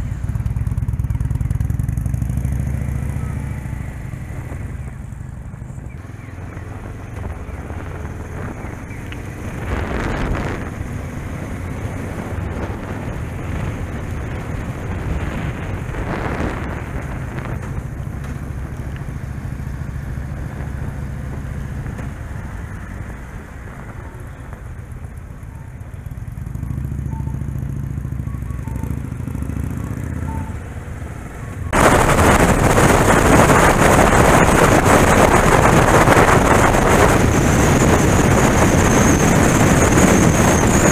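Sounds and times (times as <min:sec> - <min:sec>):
motorcycle engine accelerating: 0:00.0 - 0:40.9
road noise: 0:00.0 - 0:40.9
wind buffeting on microphone: 0:06.0 - 0:19.2, 0:31.6 - 0:40.9.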